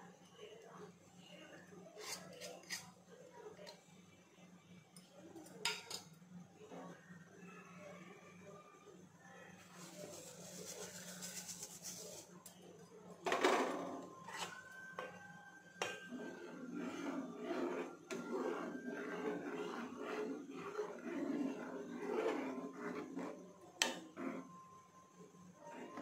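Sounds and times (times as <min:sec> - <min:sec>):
ladle scraping pot: 0:02.0 - 0:03.0, 0:09.8 - 0:12.4, 0:15.8 - 0:24.5.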